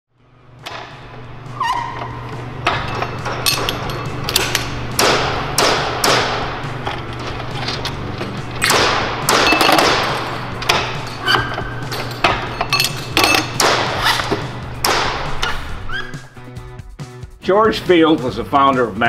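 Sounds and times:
low machine hum: 0:00.1 - 0:16.0
metal clanks and thuds: 0:02.3 - 0:15.7.

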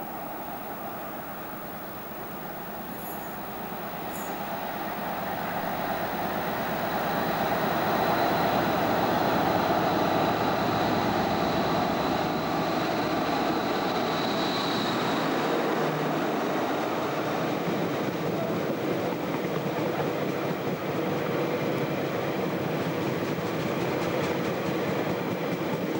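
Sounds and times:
thin high whine: 0:00.0 - 0:16.6
diesel train passing: 0:00.0 - 0:25.9.

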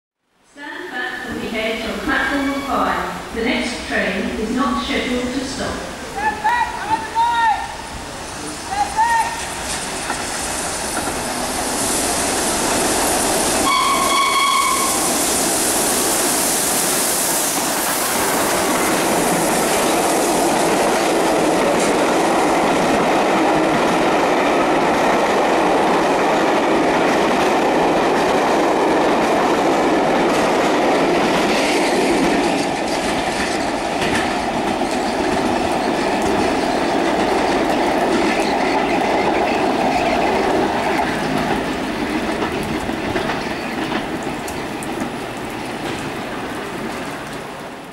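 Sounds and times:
steam locomotive hissing: 0:02.6 - 0:29.0, 0:29.7 - 0:43.8
train wheels clickety-clack: 0:09.2 - 0:46.2
train whistle blast: 0:13.6 - 0:15.1.

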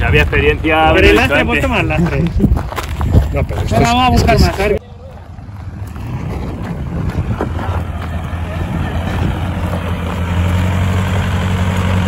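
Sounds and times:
vehicle engine running at low revs: 0:05.3 - 0:12.0.

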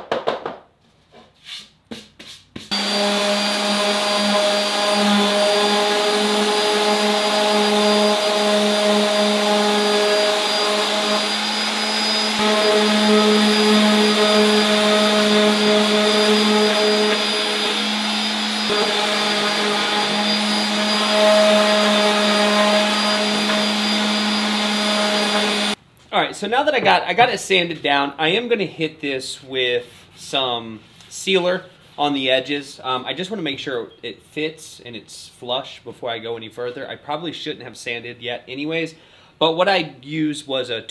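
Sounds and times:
electric sander humming: 0:02.7 - 0:25.8.

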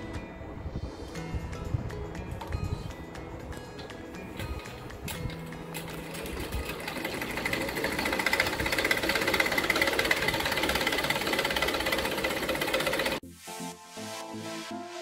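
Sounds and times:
sewing machine stitching: 0:05.2 - 0:13.2.

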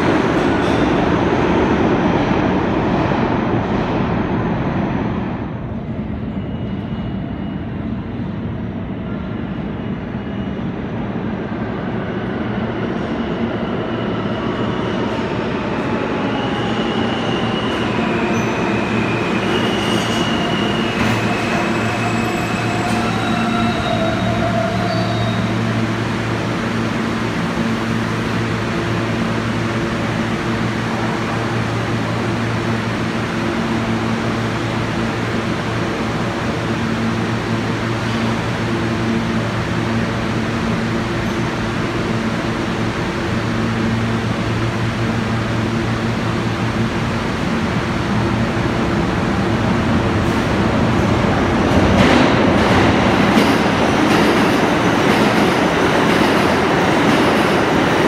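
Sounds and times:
subway train wheels rumbling: 0:00.0 - 0:58.0
high wheel squeals: 0:16.4 - 0:25.6.

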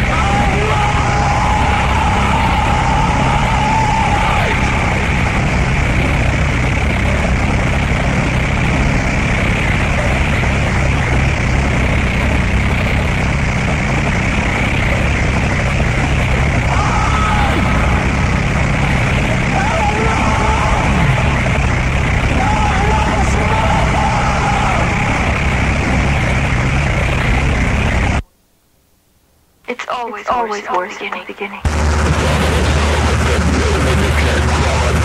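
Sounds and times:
heavy low rumble: 0:00.0 - 0:28.2, 0:30.1 - 0:35.0
harsh noise wall: 0:00.0 - 0:28.3, 0:29.2 - 0:35.0.

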